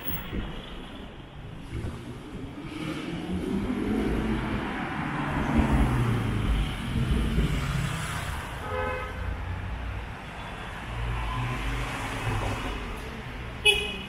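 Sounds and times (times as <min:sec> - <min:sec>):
tyres on the road: 0:00.0 - 0:14.0
car horn toot: 0:13.6 - 0:14.0.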